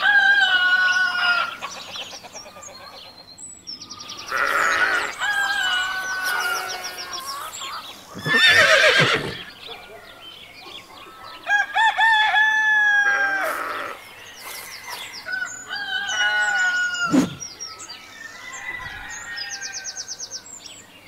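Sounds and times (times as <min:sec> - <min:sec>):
rooster crowing: 0:04.8 - 0:06.8, 0:11.5 - 0:13.7, 0:15.3 - 0:17.4, 0:18.2 - 0:20.0.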